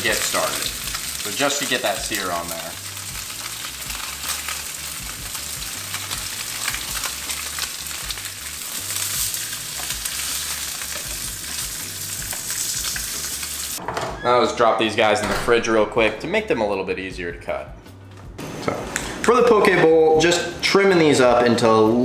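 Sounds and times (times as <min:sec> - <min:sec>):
fish sizzling in frying pan: 0:00.0 - 0:13.8.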